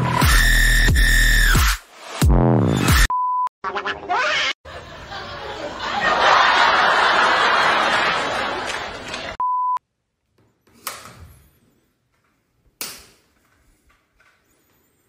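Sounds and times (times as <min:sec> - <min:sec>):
sitcom audience laughter: 0:04.7 - 0:09.4
short steady beep: 0:09.4 - 0:09.8.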